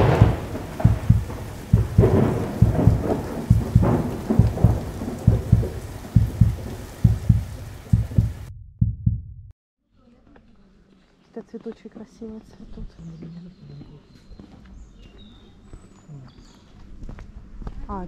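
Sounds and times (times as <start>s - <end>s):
rushing noise: 0.0s - 8.5s
deep booming hits: 0.0s - 9.5s.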